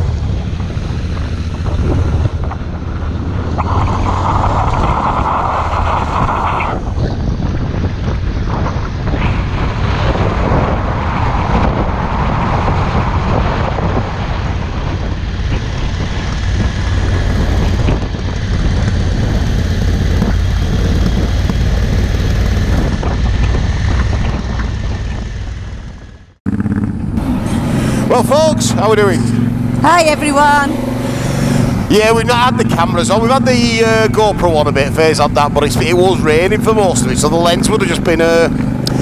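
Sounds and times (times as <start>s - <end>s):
motorcycle engine running: 0.0s - 4.8s, 6.8s - 39.0s
wind rushing over microphone: 0.0s - 39.0s.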